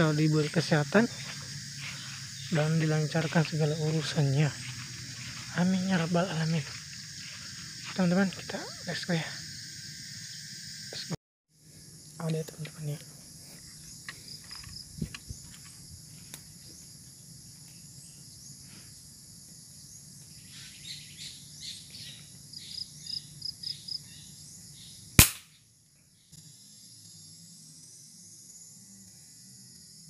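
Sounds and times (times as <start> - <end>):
birds chirping: 0.0 - 7.8
insects droning: 0.0 - 30.0
air rifle shot: 25.2 - 25.5.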